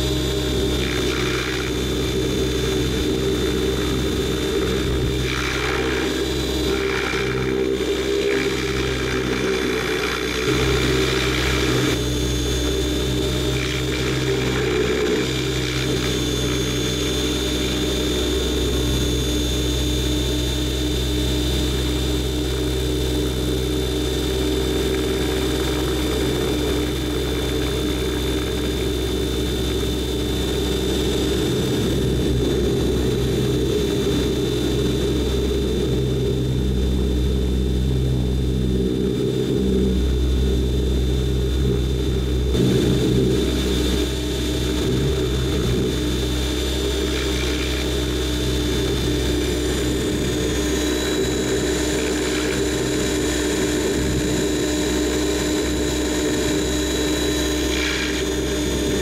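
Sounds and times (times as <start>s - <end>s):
aircraft engine drone: 0.0s - 59.0s
thin high whine: 0.0s - 59.0s.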